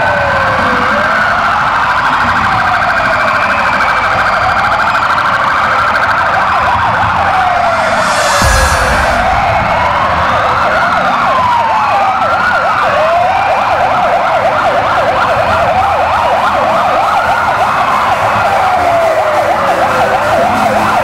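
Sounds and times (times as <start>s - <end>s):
police sirens wailing: 11.2s - 21.0s.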